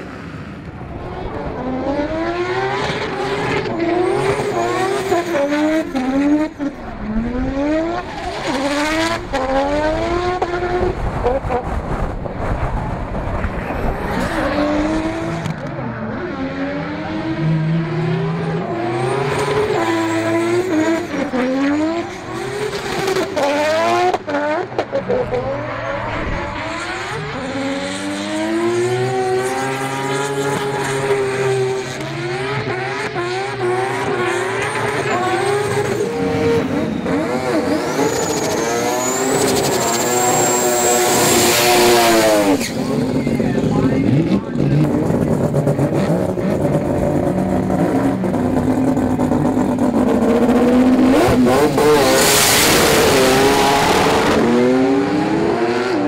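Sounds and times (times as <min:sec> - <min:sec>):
rotary engines revving hard: 0:00.0 - 0:56.0
tyre squeal: 0:36.9 - 0:42.9.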